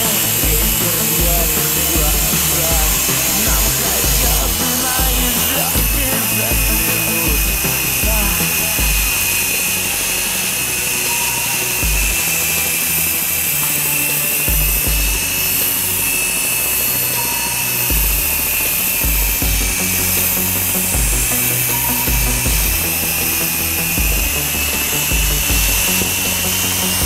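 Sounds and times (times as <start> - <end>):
toy helicopter motor whining: 0.0 - 14.8
background music with bass: 0.0 - 27.0.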